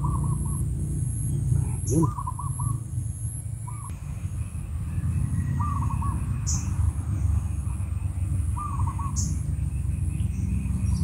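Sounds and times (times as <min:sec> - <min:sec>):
steady low rumble: 0:00.0 - 0:11.0
bird calling short phrase: 0:01.8 - 0:02.8.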